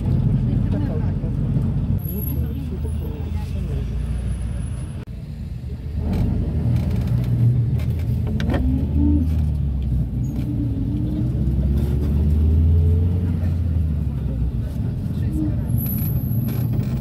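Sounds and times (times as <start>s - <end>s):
bus engine and road rumble: 0.0s - 17.0s.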